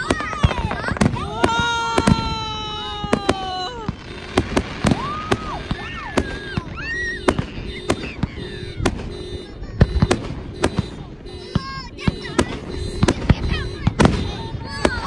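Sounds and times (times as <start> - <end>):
fireworks bangs and crackles: 0.0 - 15.0.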